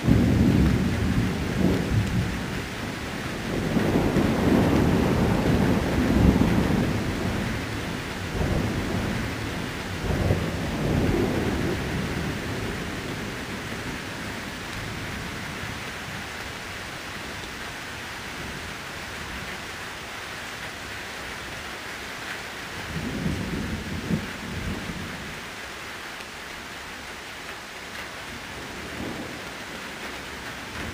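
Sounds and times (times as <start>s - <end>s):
thunder rumbling: 0.0s - 16.3s, 22.9s - 25.3s, 28.4s - 30.9s
steady rain: 0.0s - 30.9s.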